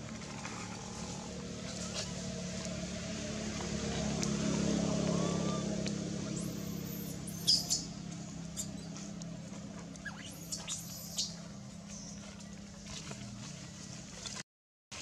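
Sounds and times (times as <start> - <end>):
monkey distress squeaks: 6.4 - 7.9, 10.0 - 11.4.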